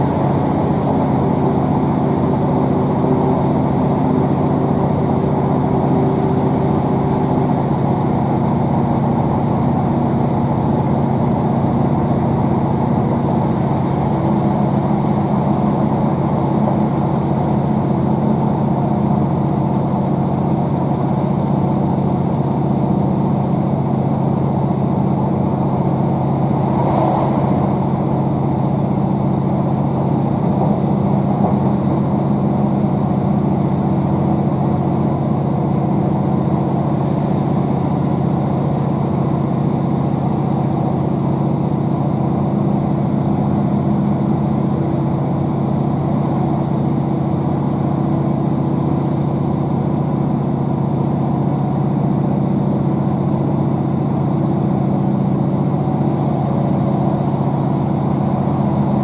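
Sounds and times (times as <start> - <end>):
diesel engine running: 0.0 - 59.0
train wheel and rail noise: 0.0 - 59.0
brief rush of air: 26.6 - 28.4.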